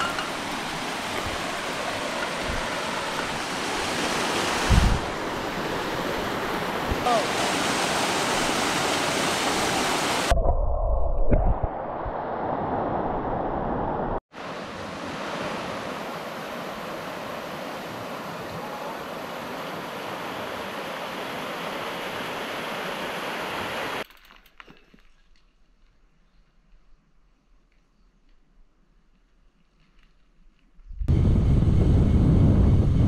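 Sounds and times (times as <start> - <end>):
wind buffeting microphone: 0.0 - 7.0, 30.9 - 33.0
waterfall rushing: 0.0 - 10.3, 14.4 - 24.0.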